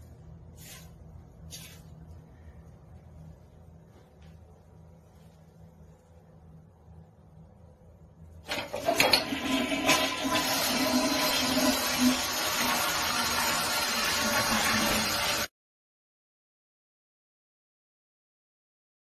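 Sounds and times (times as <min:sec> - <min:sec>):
toilet flushing: 0:08.4 - 0:15.5.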